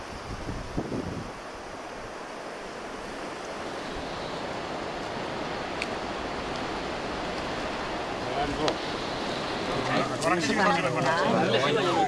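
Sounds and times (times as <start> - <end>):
rushing wind: 0.0 - 12.0.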